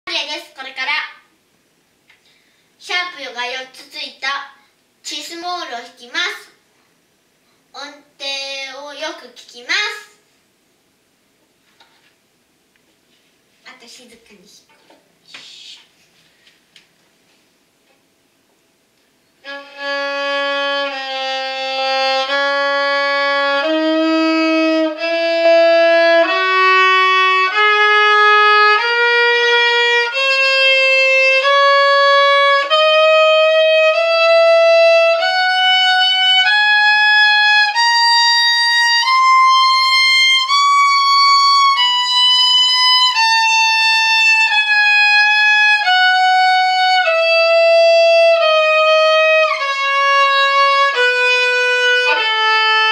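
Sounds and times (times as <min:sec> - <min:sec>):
solo violin playing a scale: 0:19.4 - 0:52.9.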